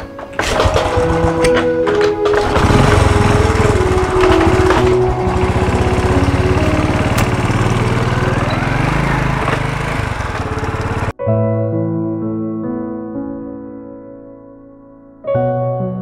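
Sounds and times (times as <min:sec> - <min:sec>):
small motorcycle engine puttering: 0:00.0 - 0:11.1.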